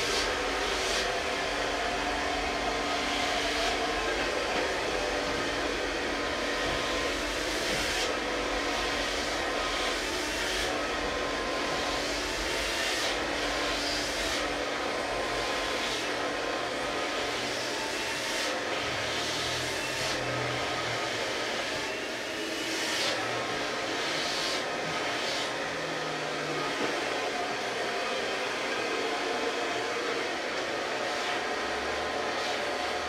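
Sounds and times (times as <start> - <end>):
hair dryer running: 0.0 - 33.0.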